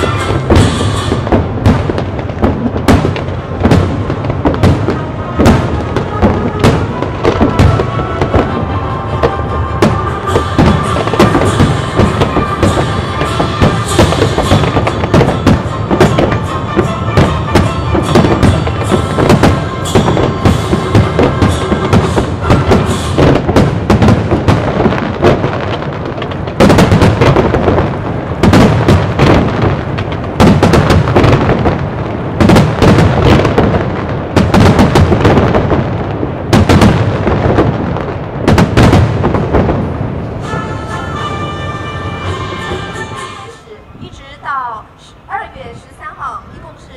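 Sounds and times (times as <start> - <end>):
music: 0.0 - 1.2, 6.0 - 23.2, 40.4 - 43.8
loud firework booms: 0.0 - 43.5
fireworks bursting and crackling: 0.0 - 46.9.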